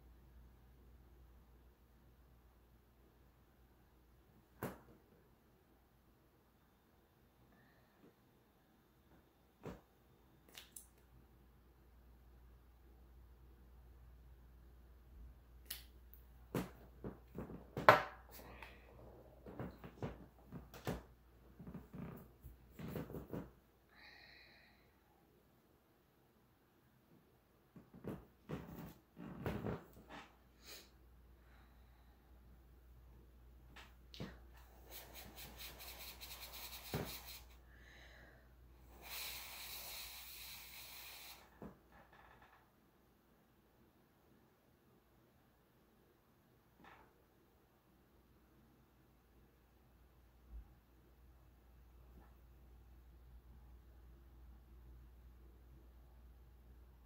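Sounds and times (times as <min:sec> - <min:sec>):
person blowing breathy hiss: 0:34.6 - 0:41.6.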